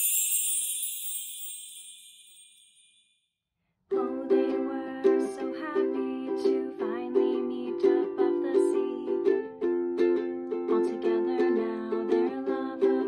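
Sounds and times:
high bell-like shimmer: 0.0 - 3.3
ukulele strumming chords: 3.9 - 13.0.

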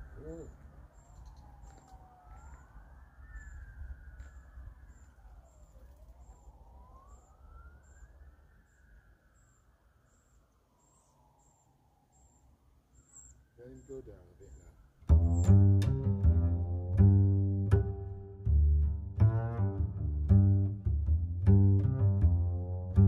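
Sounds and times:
distant siren wailing: 0.0 - 17.0.

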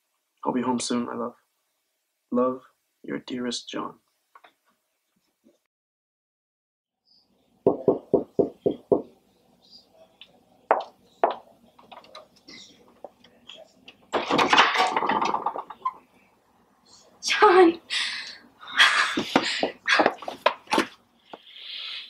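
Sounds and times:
knocking on wooden door: 7.7 - 9.1.

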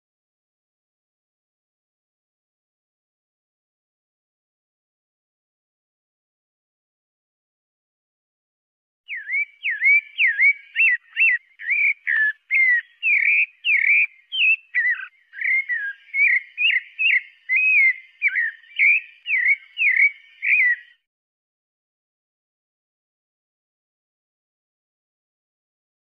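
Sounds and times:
thrush singing whistled notes: 9.1 - 21.1.

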